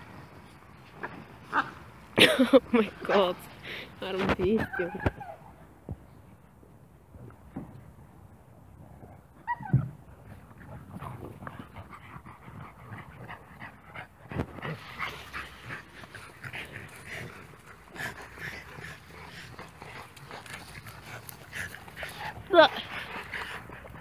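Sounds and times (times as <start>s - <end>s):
dog whines and yips: 4.6s - 5.6s, 9.4s - 9.9s
dog yelp: 9.4s - 9.9s.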